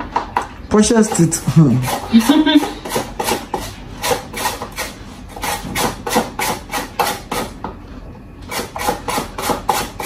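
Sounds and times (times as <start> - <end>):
carrot grating rasping strokes: 1.4 - 7.5, 8.5 - 10.0.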